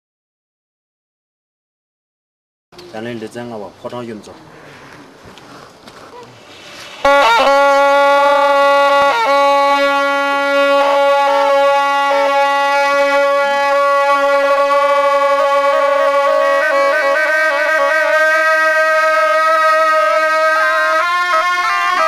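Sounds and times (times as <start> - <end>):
double-reed oboes playing: 6.4 - 22.0.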